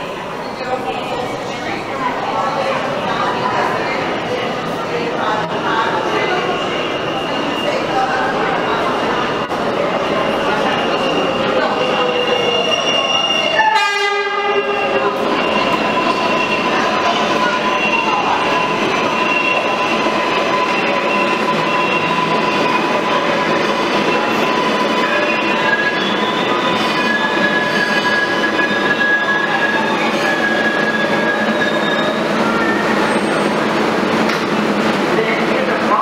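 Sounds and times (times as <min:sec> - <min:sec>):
subway wheels rumbling on rail: 0:00.0 - 0:36.0.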